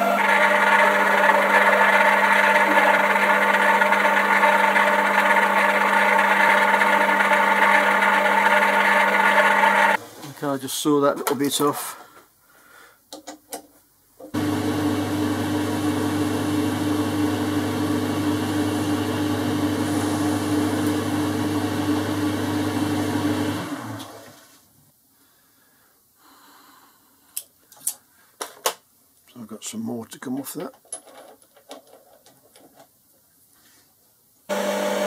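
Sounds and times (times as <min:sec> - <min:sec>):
metal lathe humming: 0:00.0 - 0:10.0, 0:34.5 - 0:35.0.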